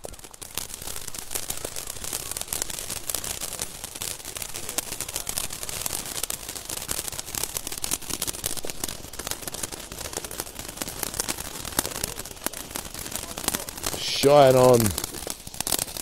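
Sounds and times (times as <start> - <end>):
firework fountain crackling: 0.0 - 16.0.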